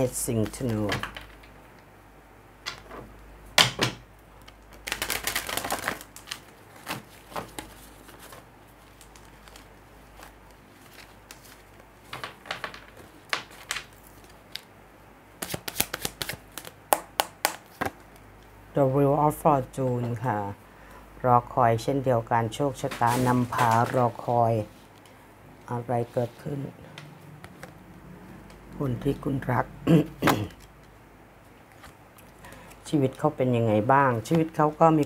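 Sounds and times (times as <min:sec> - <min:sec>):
cards being shuffled: 0:04.4 - 0:14.7, 0:15.4 - 0:18.2.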